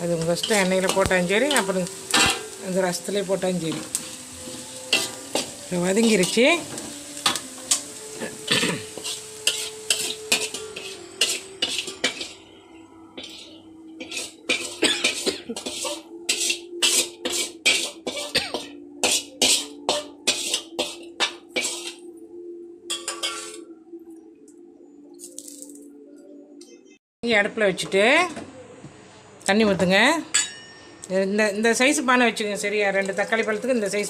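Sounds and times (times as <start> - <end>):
metal spatula scraping steel pot: 0.4 - 12.5, 13.2 - 22.1, 22.9 - 23.6.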